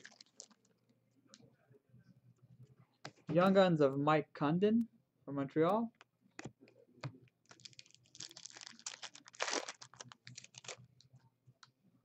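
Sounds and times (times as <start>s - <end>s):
wrapper tearing and rustling: 0.0s - 0.6s, 7.4s - 10.9s.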